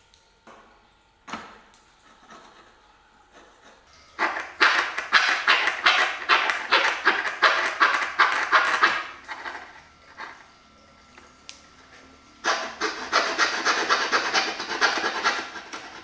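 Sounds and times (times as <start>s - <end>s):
coping saw cutting wood: 3.7s - 10.5s, 11.9s - 16.0s.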